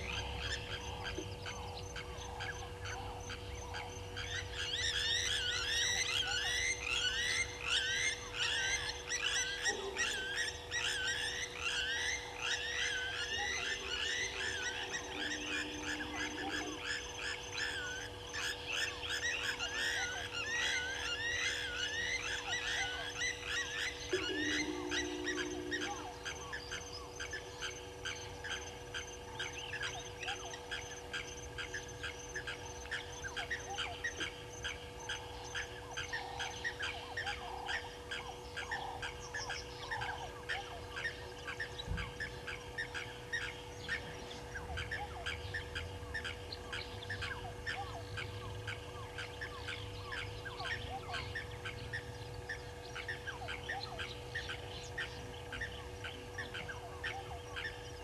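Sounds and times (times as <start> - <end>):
steady hum: 0.0 - 58.0
geese honking: 9.3 - 26.8.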